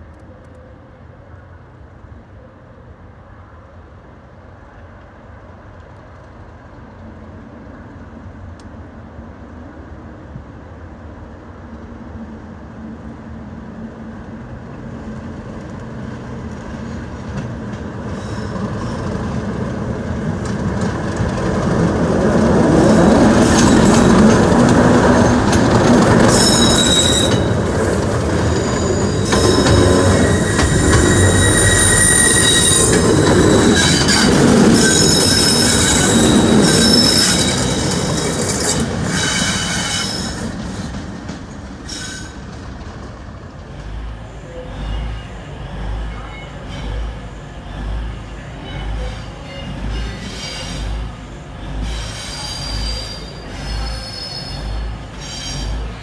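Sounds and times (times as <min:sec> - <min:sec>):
diesel locomotive passing: 0:00.0 - 0:56.0
wheels squealing: 0:20.6 - 0:41.0, 0:48.6 - 0:56.0.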